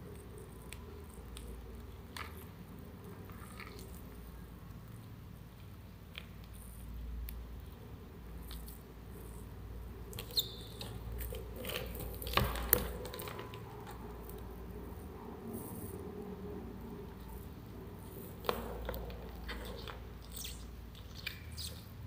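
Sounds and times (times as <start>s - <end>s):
faint scratching and clicking: 0.0s - 22.0s
low steady hum: 0.0s - 22.0s
short squeaky click: 10.2s - 11.0s.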